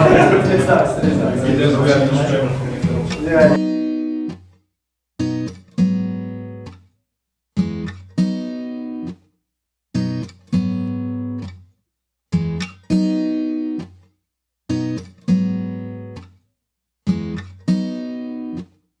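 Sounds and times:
guitar strumming chords: 0.0s - 4.4s, 5.2s - 6.8s, 7.6s - 9.2s, 10.0s - 11.6s, 12.4s - 13.9s, 14.7s - 16.3s, 17.1s - 18.7s.

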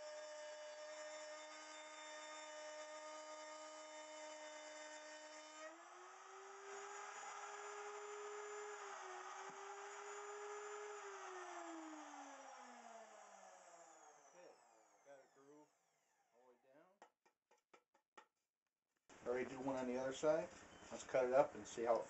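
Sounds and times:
router whining: 0.0s - 16.2s.

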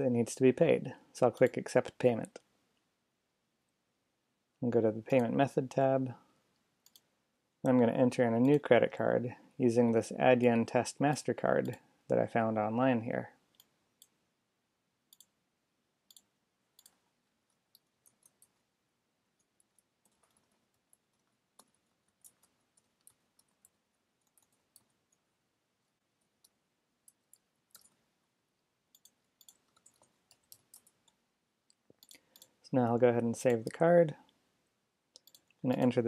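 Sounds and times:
faint keyboard and mouse clicks: 1.3s - 2.9s, 5.1s - 5.5s, 6.5s - 7.1s, 7.7s - 8.7s, 11.4s - 11.9s, 13.5s - 14.2s, 15.1s - 15.4s, 16.1s - 18.7s, 19.4s - 25.3s, 26.2s - 34.4s, 35.1s - 36.0s.

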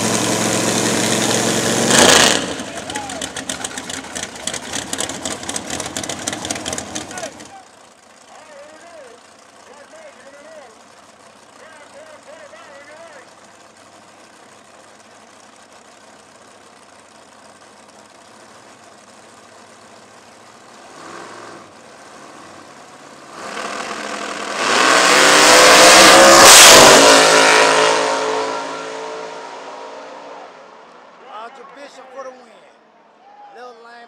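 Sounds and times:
drag racing cars idling: 0.0s - 24.6s
race cars at full throttle: 0.0s - 31.6s.

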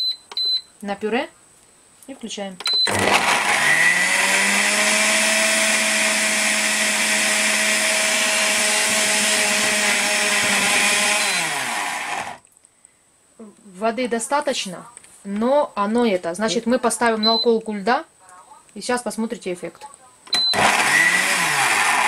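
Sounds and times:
blender motor running: 2.8s - 12.4s, 20.5s - 22.0s.

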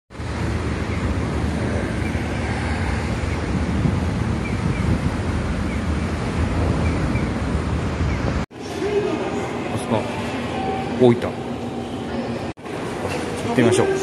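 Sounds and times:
wind buffeting microphone: 0.1s - 9.7s.

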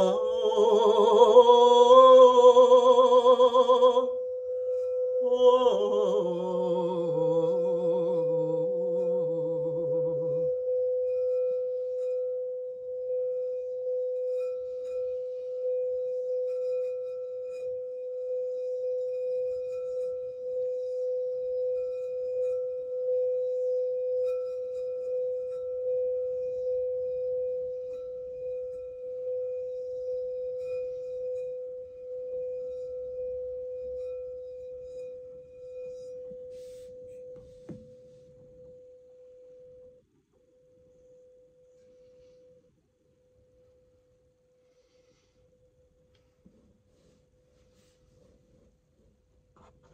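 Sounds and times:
wordless singing voice: 0.0s - 4.2s, 5.2s - 10.4s
singing bowl ringing: 0.0s - 40.0s.

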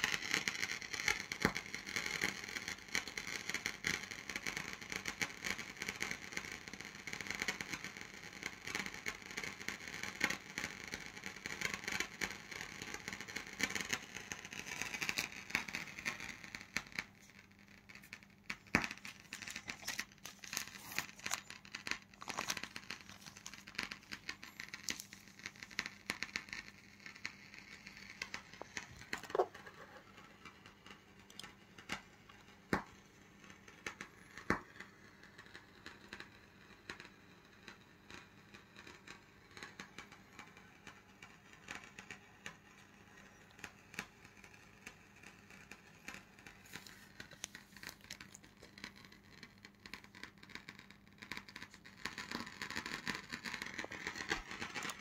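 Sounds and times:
aluminium foil crinkling: 14.6s - 30.6s, 46.1s - 55.0s.

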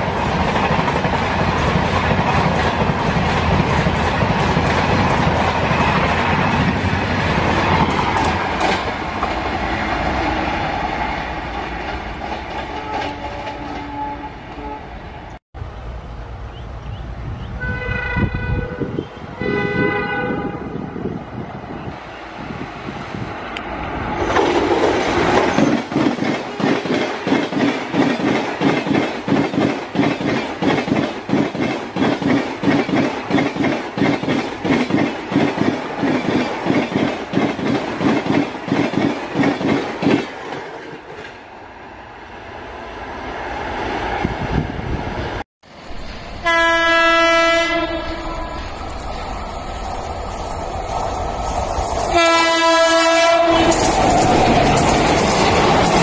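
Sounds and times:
train rolling rumble: 0.0s - 42.1s, 43.0s - 56.0s
train horn blast: 12.7s - 15.0s, 17.6s - 21.0s, 46.4s - 48.8s, 52.1s - 53.8s
train wheels clattering over rail joints: 24.2s - 41.4s, 53.6s - 56.0s.

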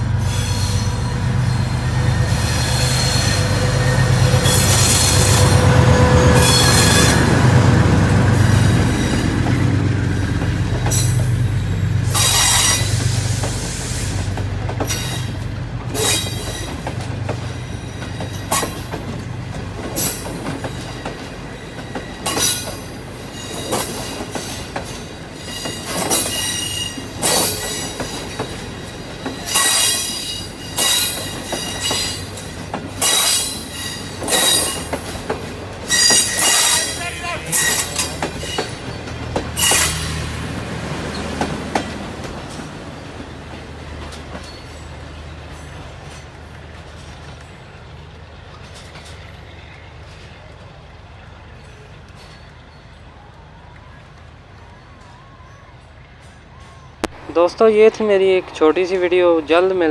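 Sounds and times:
high-pitched wheel squeals: 0.2s - 7.2s, 35.9s - 39.0s, 39.6s - 40.2s
train wheels clacking over rail joints: 2.2s - 47.6s.

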